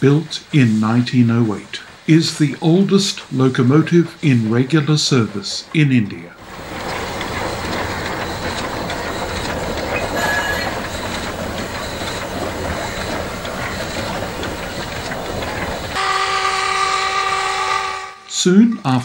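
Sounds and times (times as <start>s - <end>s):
steam locomotive wheels rumbling: 0.0s - 19.0s
wheel squeal: 6.4s - 17.9s.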